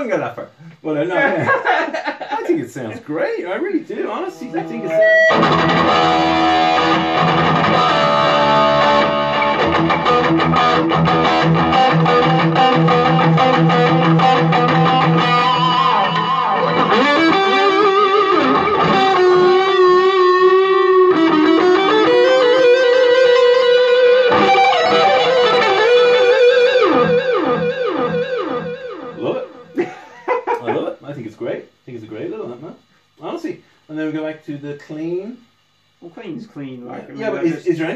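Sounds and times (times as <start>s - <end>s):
electric guitar lead: 4.4s - 29.8s.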